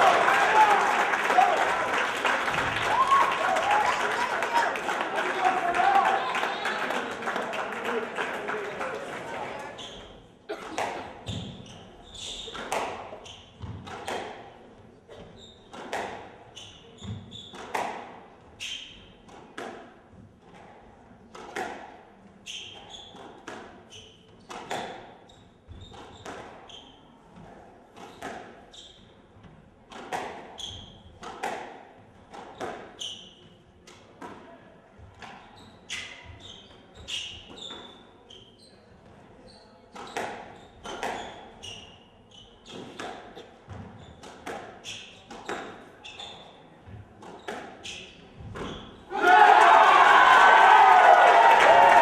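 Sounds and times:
sneakers squeaking on floor: 0:09.7 - 0:19.4, 0:22.4 - 0:29.6, 0:30.5 - 0:31.2, 0:32.3 - 0:33.7, 0:35.2 - 0:49.1.

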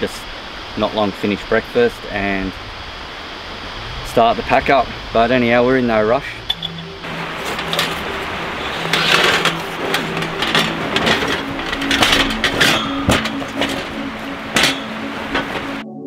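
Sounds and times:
creek water rushing: 0:00.0 - 0:15.8
soft music: 0:03.8 - 0:16.0
metal frame clinks and knocks: 0:07.4 - 0:15.8.

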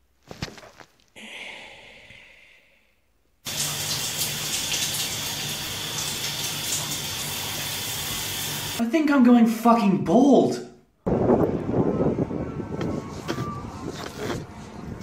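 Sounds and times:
soft rustles: 0:00.0 - 0:01.2
person scrubbing wet hair: 0:03.5 - 0:08.8
shower water spraying: 0:03.5 - 0:08.8.

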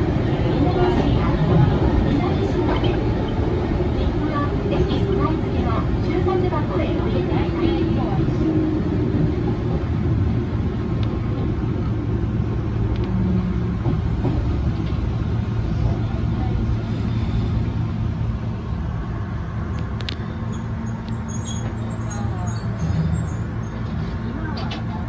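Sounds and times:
train wheels rumbling on rail: 0:00.0 - 0:25.0.

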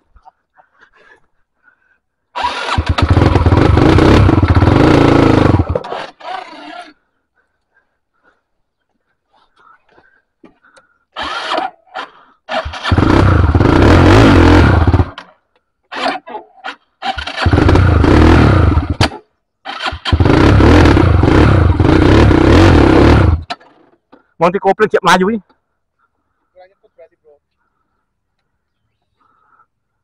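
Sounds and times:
dirt bike engine cranking: 0:02.4 - 0:07.0, 0:11.2 - 0:15.3, 0:15.9 - 0:24.1.

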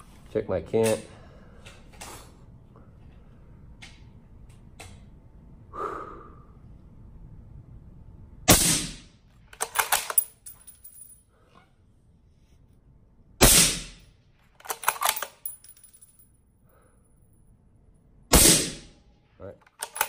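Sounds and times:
metallic clicks of rifle bolt: 0:09.6 - 0:10.5, 0:14.5 - 0:15.9, 0:19.6 - 0:20.0.

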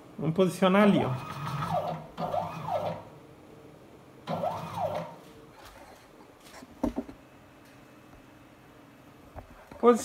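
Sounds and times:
stepper motor whine: 0:01.2 - 0:03.1, 0:04.3 - 0:05.2.

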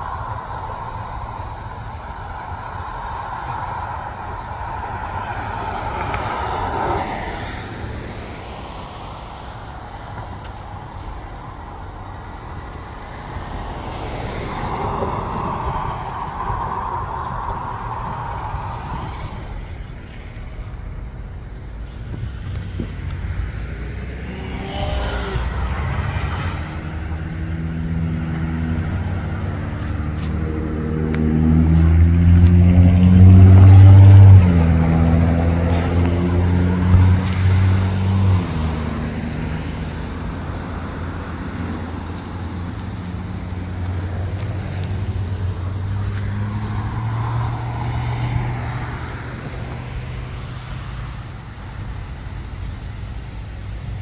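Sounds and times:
passing traffic: 0:00.0 - 0:54.0
vehicle engine passing close: 0:21.8 - 0:53.5.

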